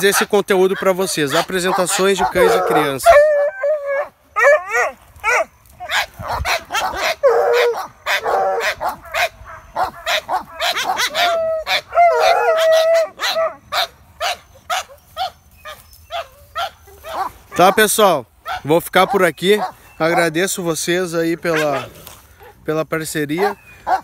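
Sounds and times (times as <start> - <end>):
dogs barking and yipping: 0.0 - 24.0
dogs whining howls: 1.9 - 13.6.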